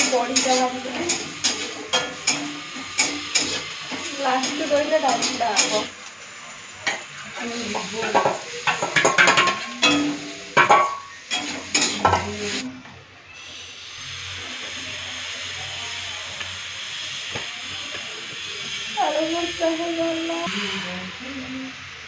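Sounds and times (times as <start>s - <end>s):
spatula clanking on steel bowl: 0.0s - 5.9s, 8.0s - 12.4s
frying sizzle: 0.0s - 12.7s, 13.4s - 20.8s.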